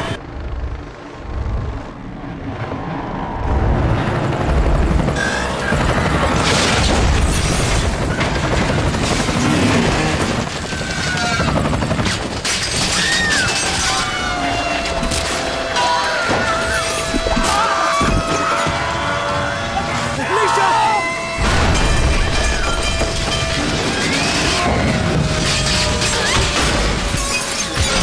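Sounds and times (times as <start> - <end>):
helicopter rotor and engine rumble: 0.0 - 28.0
crash with metal impacts: 21.4 - 28.0.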